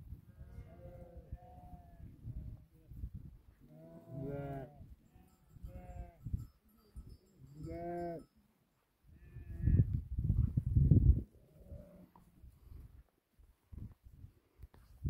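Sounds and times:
sheep bleating: 0:03.7 - 0:06.2.

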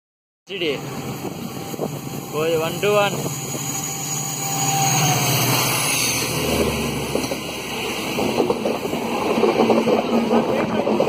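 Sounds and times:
diesel locomotive engine drone: 0:00.5 - 0:11.0
rushing wind: 0:00.5 - 0:11.0
train wheels clattering over rail joints: 0:06.5 - 0:11.0.

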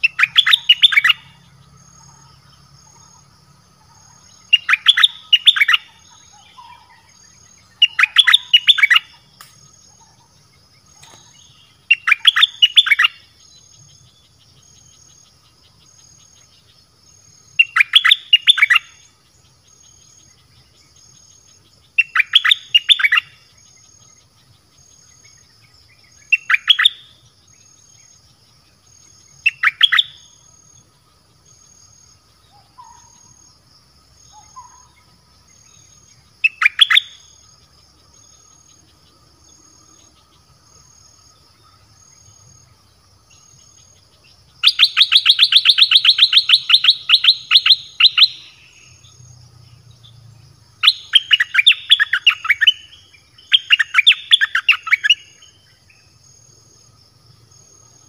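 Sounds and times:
bird whistled song: 0:00.0 - 0:03.3, 0:04.0 - 0:10.3, 0:10.9 - 0:15.2, 0:17.5 - 0:19.1, 0:19.7 - 0:28.2, 0:29.0 - 0:30.5, 0:32.5 - 0:33.4, 0:34.3 - 0:37.4, 0:44.6 - 0:49.2, 0:50.8 - 0:56.2
faint insect hum: 0:00.0 - 0:58.0.

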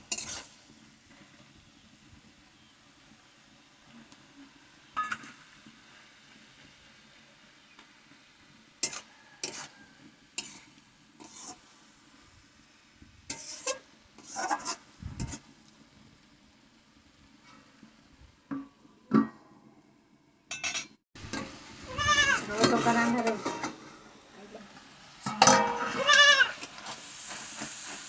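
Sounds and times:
metal spatula scraping a pan: 0:00.0 - 0:00.6, 0:08.8 - 0:11.7, 0:13.3 - 0:15.5, 0:20.5 - 0:24.0, 0:25.2 - 0:28.0
steel plate clanking on a pan: 0:05.0 - 0:05.4, 0:20.5 - 0:21.5, 0:25.2 - 0:26.0.

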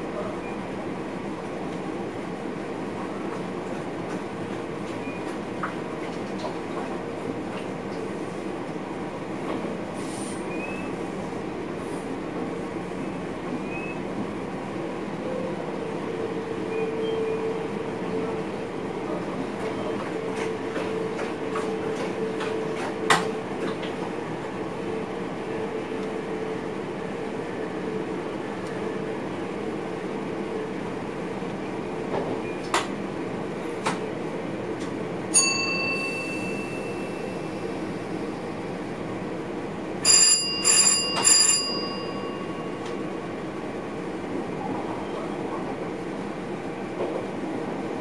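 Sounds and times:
train running noise in cab: 0:00.0 - 0:48.0
cab bell ringing: 0:35.4 - 0:37.2, 0:40.1 - 0:42.8.

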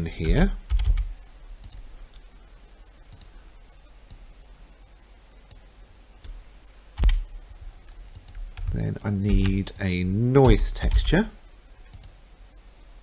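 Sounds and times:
computer mouse clicks: 0:00.2 - 0:02.3, 0:03.1 - 0:03.3, 0:07.9 - 0:11.1, 0:11.9 - 0:12.2.

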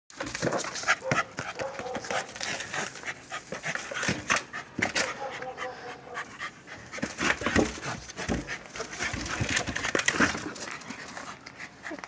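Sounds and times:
ball scuffs and knocks on concrete: 0:00.2 - 0:05.1.

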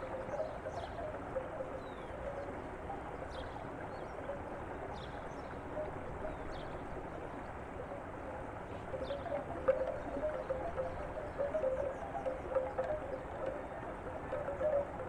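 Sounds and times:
flowing water: 0:00.0 - 0:15.0
faint high ticks: 0:09.0 - 0:15.0.

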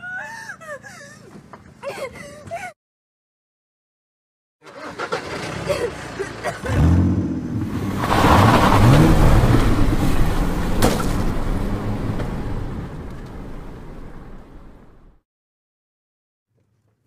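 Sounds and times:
car engine revving and accelerating: 0:06.6 - 0:13.8.

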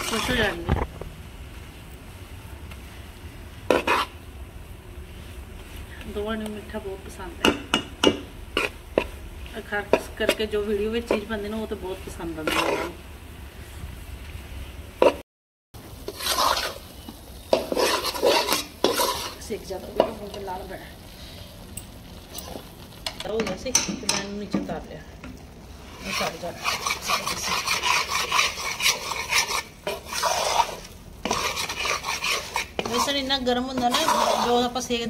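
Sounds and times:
metal spoon scraping pan: 0:00.0 - 0:00.6, 0:03.7 - 0:04.2, 0:07.4 - 0:09.2, 0:12.3 - 0:13.0, 0:16.0 - 0:16.9, 0:17.5 - 0:20.5, 0:25.9 - 0:34.9
ghee sizzling: 0:00.0 - 0:15.2, 0:15.8 - 0:35.0.

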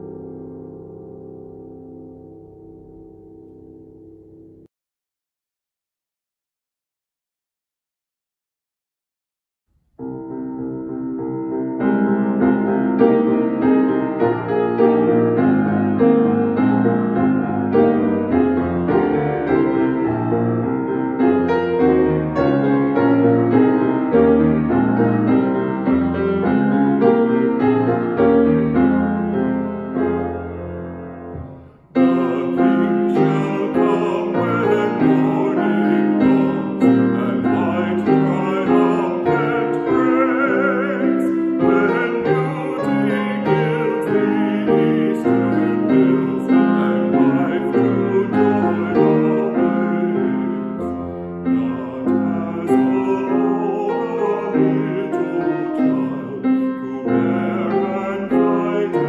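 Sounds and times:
hymn on piano: 0:00.0 - 0:04.7, 0:10.0 - 0:59.0
man singing a hymn: 0:32.0 - 0:59.0.

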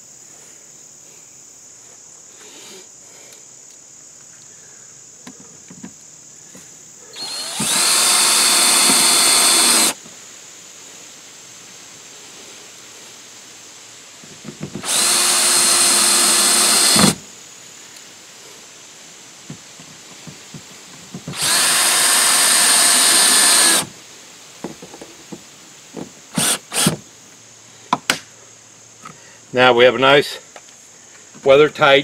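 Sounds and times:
cordless drill driving screws: 0:07.2 - 0:10.0, 0:14.8 - 0:17.2, 0:21.3 - 0:23.9, 0:26.3 - 0:27.0.

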